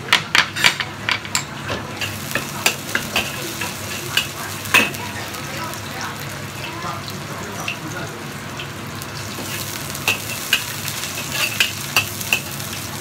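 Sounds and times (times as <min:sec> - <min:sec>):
garlic sizzling in oil: 0:01.5 - 0:13.0
metal spatula scraping a wok: 0:09.5 - 0:12.6.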